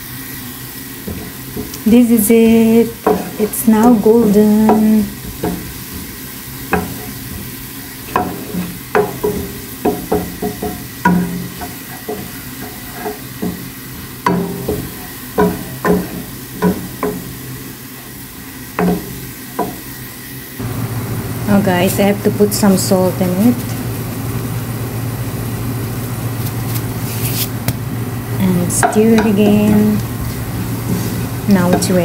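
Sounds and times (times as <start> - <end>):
onions sizzling in oil: 0.0 - 32.0
spoon scraping a pan: 2.8 - 16.3.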